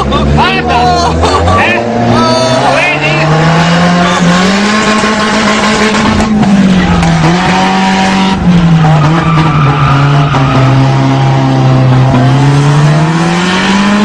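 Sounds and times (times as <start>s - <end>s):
car engine revving: 0.0s - 14.0s.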